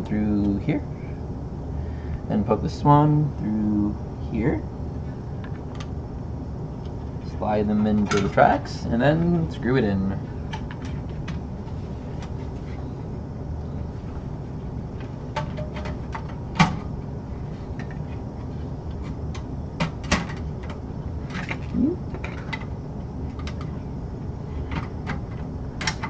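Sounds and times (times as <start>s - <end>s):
low hum: 0.0s - 26.0s
clicks and knocks of motherboard: 24.7s - 26.0s.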